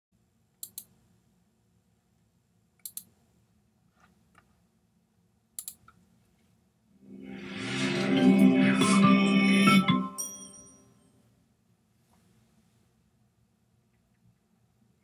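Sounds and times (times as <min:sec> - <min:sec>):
computer mouse clicks: 0:00.6 - 0:01.0, 0:02.8 - 0:03.2, 0:05.6 - 0:06.0.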